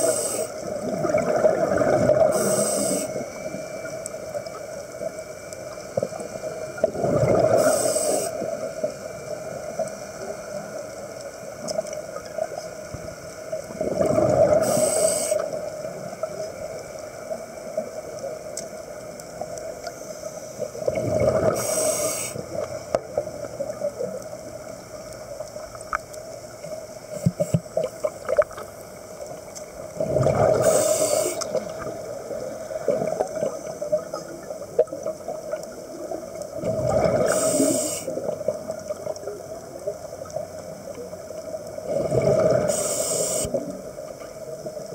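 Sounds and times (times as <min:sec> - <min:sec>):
steady hum: 0:00.0 - 0:44.9
diver exhaling bubbles: 0:00.8 - 0:03.0, 0:06.9 - 0:07.7, 0:13.8 - 0:14.8, 0:20.8 - 0:21.8, 0:30.0 - 0:31.9, 0:36.6 - 0:38.4, 0:41.9 - 0:42.8.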